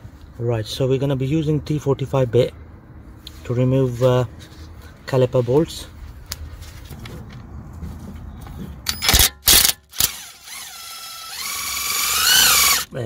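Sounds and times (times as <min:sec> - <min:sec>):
power driver undoing bolt: 0:08.9 - 0:10.7.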